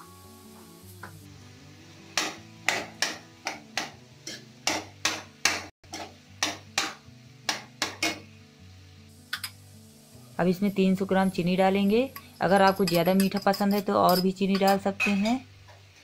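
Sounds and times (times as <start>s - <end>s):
background music: 0.0s - 16.0s
metal spoon scraping metal pan: 12.0s - 15.4s.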